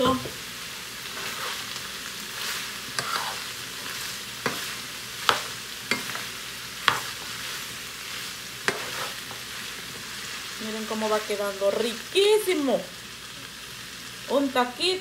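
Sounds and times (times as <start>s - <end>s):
food sizzling in a frying pan: 0.0s - 15.0s
metal spoon scraping a pan: 1.1s - 1.8s, 2.5s - 7.6s, 8.6s - 9.6s.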